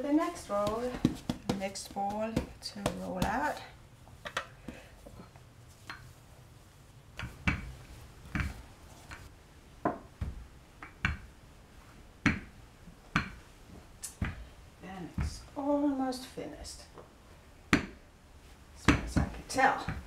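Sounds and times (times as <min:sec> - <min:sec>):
rolling pin rolling dough: 0:00.0 - 0:03.6.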